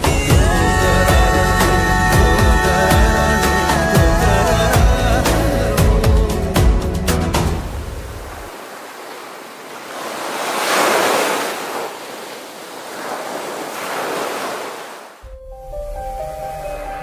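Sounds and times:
music: 0.0 - 8.0, 15.2 - 17.0
sea waves breaking on beach: 7.6 - 17.0.

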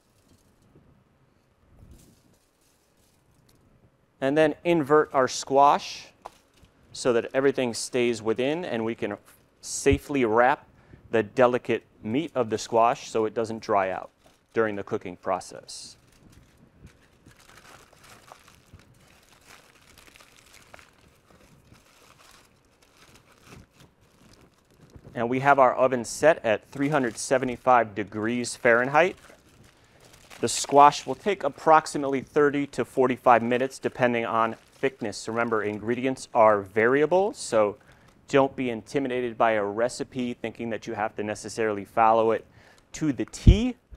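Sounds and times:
aluminium foil crinkling: 1.9 - 3.6, 6.2 - 7.4, 13.6 - 36.4.

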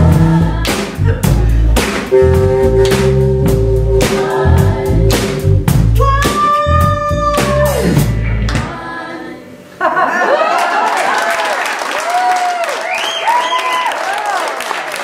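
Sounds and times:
drum kit hits: 0.0 - 8.9
live rock band playing: 0.0 - 8.9
group vocals holding notes: 0.0 - 9.8
audience cheering: 10.3 - 15.0.

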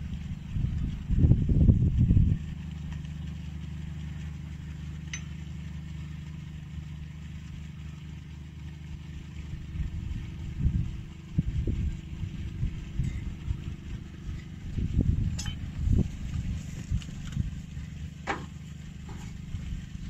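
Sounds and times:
engine idling: 0.0 - 20.0
loud low rumbling: 0.0 - 20.0
sharp metallic clink: 15.3 - 15.6.

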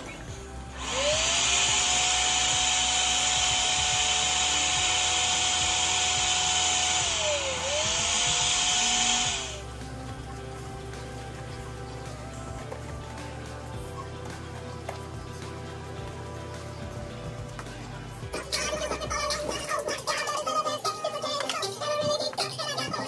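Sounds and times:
balloon inflator blower running: 0.0 - 10.9.

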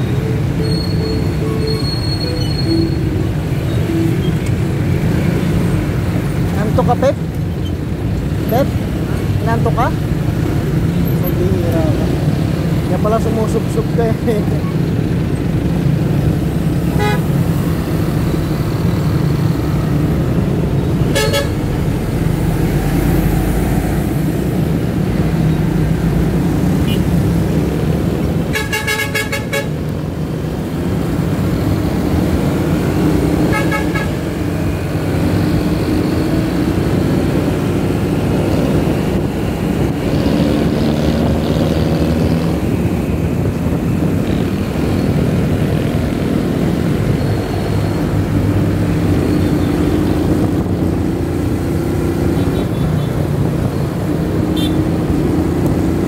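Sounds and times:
road traffic: 0.0 - 56.0
vehicle horns beeping: 16.9 - 17.4, 21.1 - 21.7, 26.8 - 27.1, 28.5 - 29.8, 33.4 - 34.4, 54.5 - 54.8.

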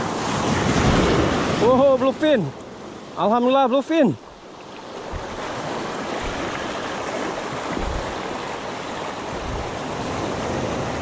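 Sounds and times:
surf rushing through stones: 0.0 - 2.5, 5.0 - 11.0
wind thumps on microphone: 5.0 - 8.5, 9.3 - 10.0.

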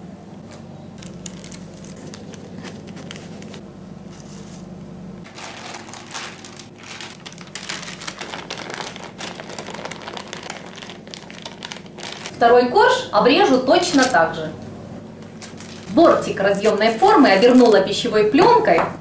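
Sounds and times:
parchment paper crinkling: 0.5 - 4.7, 5.3 - 12.6, 13.7 - 14.2, 15.2 - 18.2.

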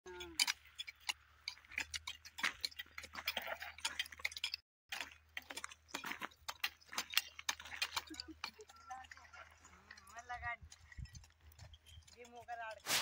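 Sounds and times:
hand hoes chopping dry soil: 0.3 - 13.0.

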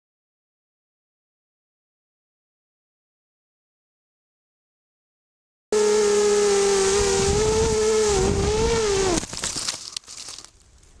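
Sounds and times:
quadcopter motors whining: 5.8 - 9.5
crackling and rustling foliage: 5.8 - 11.0.

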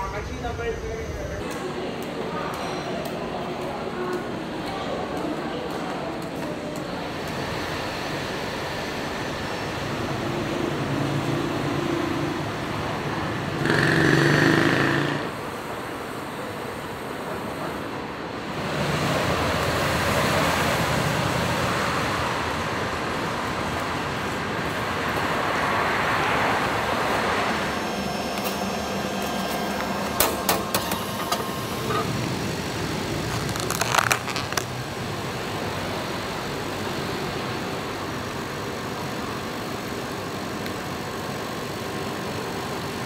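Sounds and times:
vending machine whirring: 26.7 - 36.8.

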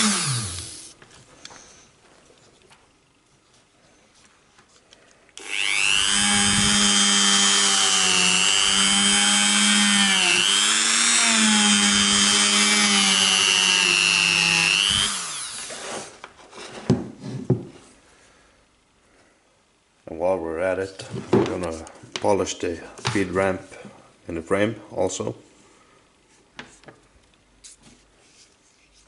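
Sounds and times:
rotary tool high whine: 0.0 - 1.0, 5.4 - 16.2.

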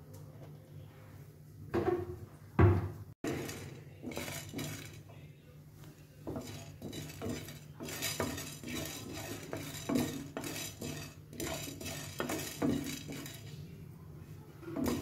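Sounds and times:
spatula scraping frying pan: 3.2 - 5.0, 6.2 - 13.7, 14.7 - 15.0
spatula knocking on pan: 6.3 - 13.4.

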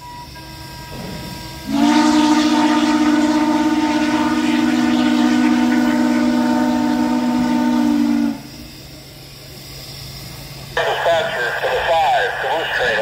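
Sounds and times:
steam whistle blast: 0.0 - 8.9.

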